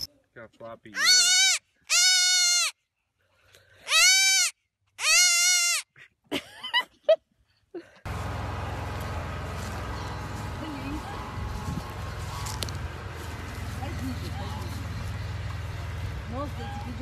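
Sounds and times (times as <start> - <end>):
baby goat bleating: 1.0 - 2.8, 3.9 - 5.9.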